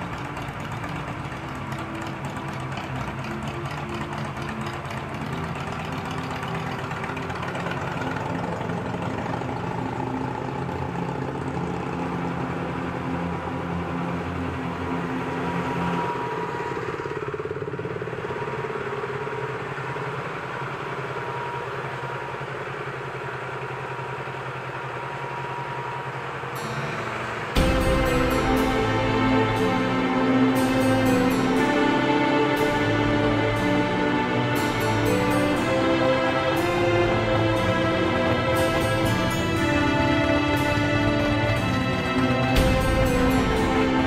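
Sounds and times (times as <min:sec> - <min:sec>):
motorcycle engine idling: 0:00.0 - 0:44.0.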